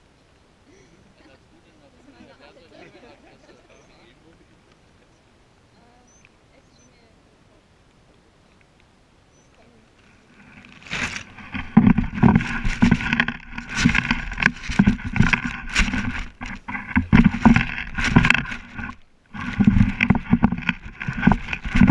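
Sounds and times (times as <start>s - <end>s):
grass rustling against camera: 0.0s - 21.9s
knocks and scrapes: 10.2s - 21.9s.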